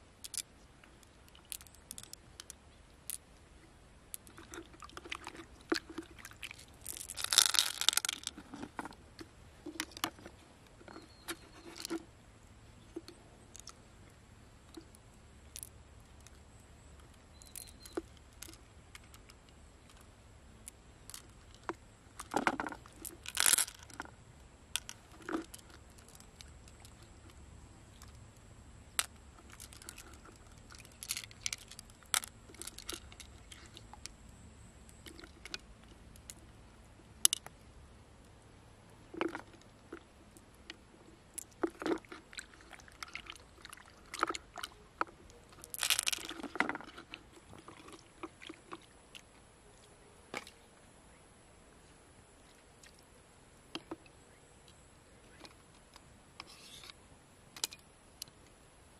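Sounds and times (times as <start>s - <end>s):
wet squelches of mussel flesh: 4.2s - 10.4s, 41.4s - 49.3s.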